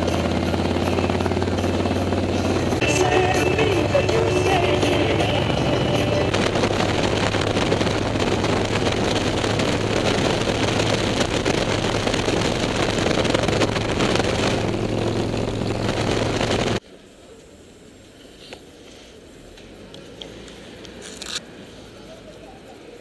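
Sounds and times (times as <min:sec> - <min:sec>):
motorcycle engine droning: 0:00.0 - 0:16.8
wind rushing over microphone: 0:03.6 - 0:16.8.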